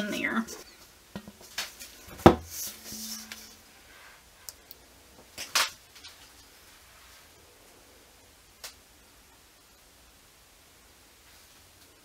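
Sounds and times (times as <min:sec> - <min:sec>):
brief scrape: 0:02.5 - 0:04.0.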